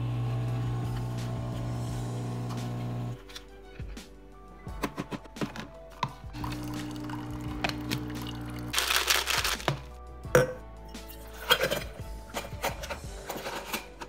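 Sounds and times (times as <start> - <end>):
background music: 0.0 - 14.0
drink pouring into metal tumbler: 6.3 - 9.8.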